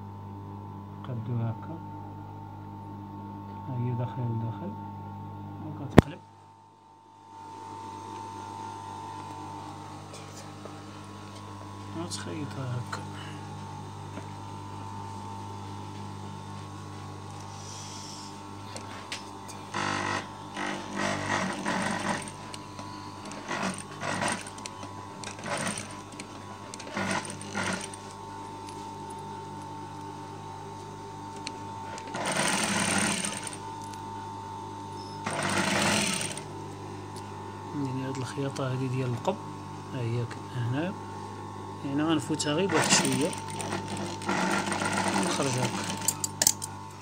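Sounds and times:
sewing machine motor humming: 17.8 - 34.1, 34.9 - 36.6, 41.9 - 47.0
sewing machine stitching: 19.7 - 28.2, 31.9 - 33.6, 35.2 - 36.5, 42.6 - 46.6.

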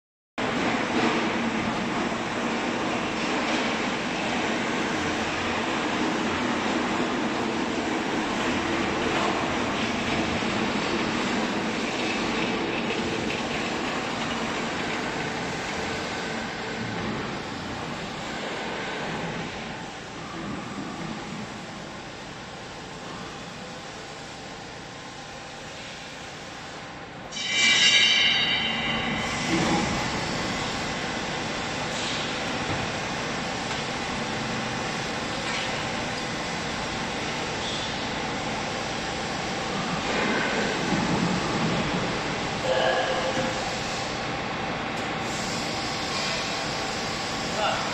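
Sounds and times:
factory machinery rumble and hiss: 0.4 - 47.9
pump mechanical hum: 0.4 - 47.9
electric pump whining squeal: 27.3 - 30.8.

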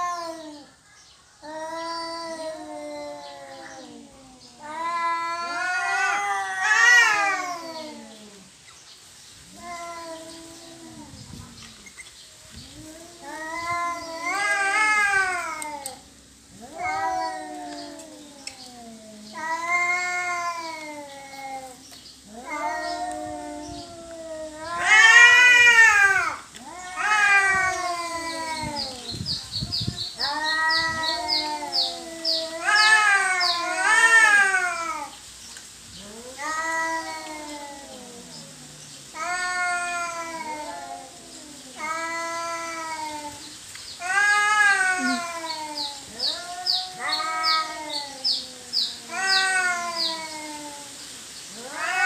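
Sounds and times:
cats yowling: 0.0 - 0.8, 1.4 - 8.6, 9.4 - 12.0, 12.6 - 35.2, 35.9 - 52.0.

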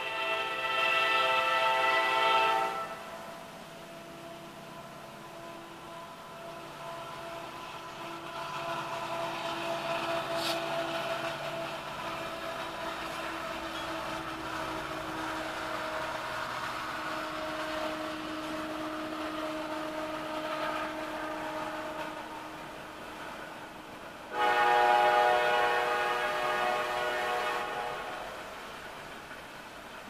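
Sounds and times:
freight train rumbling past: 0.0 - 30.0.

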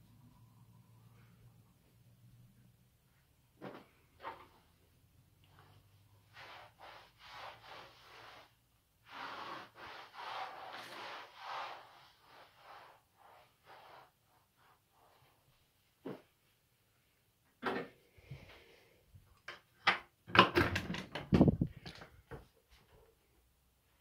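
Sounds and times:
mop swishing on wooden floor: 5.5 - 16.5.

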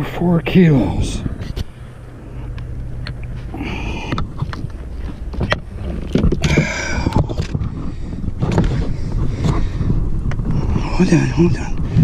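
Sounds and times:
steady low rumble: 0.0 - 12.0
handling knocks and rustles: 2.6 - 10.6.

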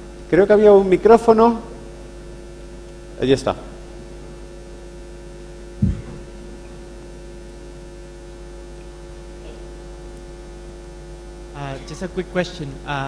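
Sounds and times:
electrical mains hum: 0.0 - 13.0
microphone handling thump: 5.8 - 6.8.

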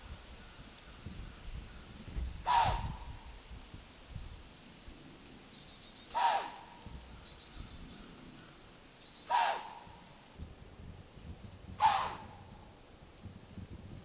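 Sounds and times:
deer snorting: 2.4 - 3.0, 6.1 - 6.8, 9.3 - 10.0, 11.8 - 12.5.

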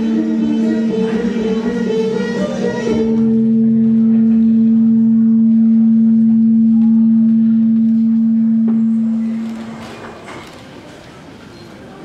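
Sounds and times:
low gong-like ringing note: 3.1 - 10.0.

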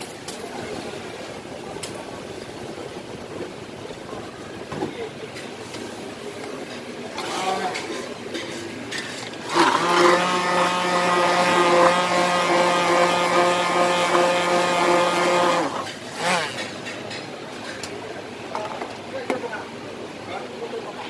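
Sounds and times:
stick blender whirring in a metal mug: 9.2 - 16.7.

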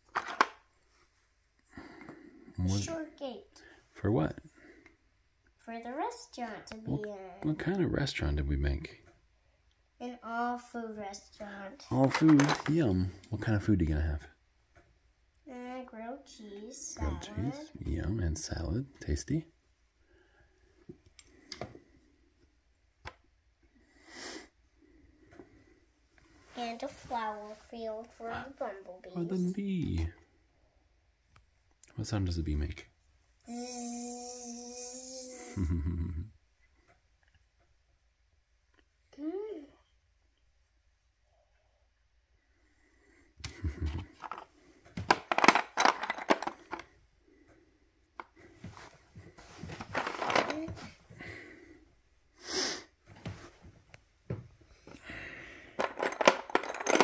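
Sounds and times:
plastic pegs clattering: 44.2 - 46.9, 55.8 - 57.0
short breathy hiss: 52.4 - 53.0.

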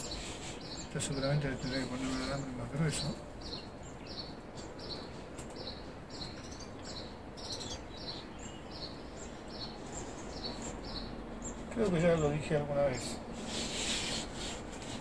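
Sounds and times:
small bird chirping: 0.0 - 14.9
low background noise: 0.0 - 15.0.

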